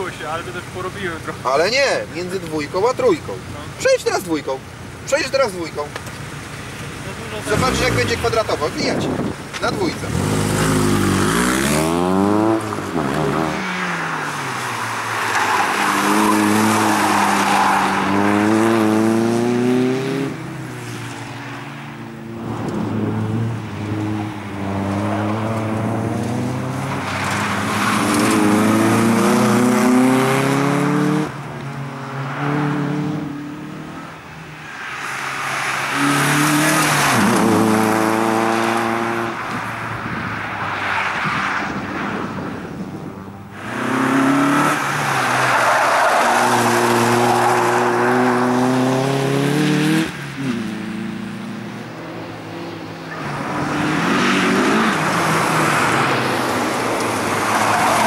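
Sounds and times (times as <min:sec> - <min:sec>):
car engine revving hard: 0:10.0 - 0:13.6, 0:15.8 - 0:20.4, 0:22.9 - 0:31.3, 0:35.9 - 0:39.4, 0:43.6 - 0:45.0, 0:46.2 - 0:51.3.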